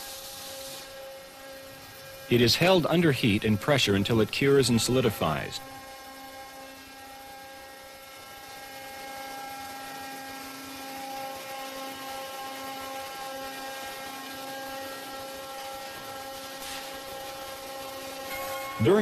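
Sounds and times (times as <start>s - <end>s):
molding press humming: 13.1s - 19.0s.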